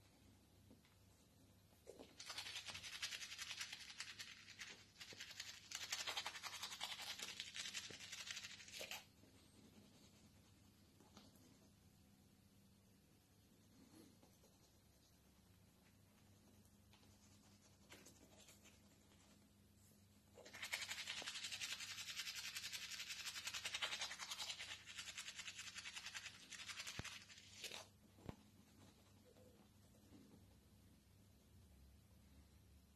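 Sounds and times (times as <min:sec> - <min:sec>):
toothbrush scrubbing teeth: 0:02.2 - 0:09.1, 0:20.4 - 0:27.9.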